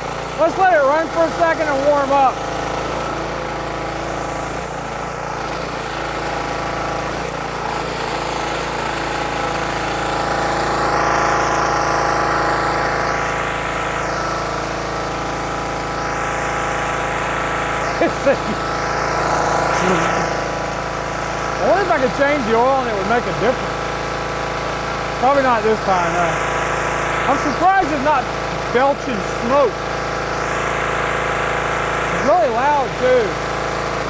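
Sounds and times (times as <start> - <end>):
pressure washer engine running: 0.0 - 34.0
water spray hissing: 5.5 - 23.8, 25.1 - 34.0.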